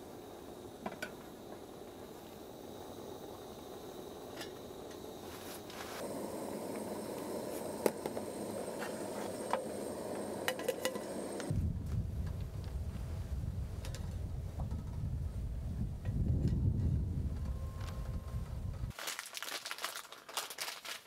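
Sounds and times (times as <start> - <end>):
camp stove hiss: 0.0 - 14.3
low wind rumble: 6.0 - 18.9.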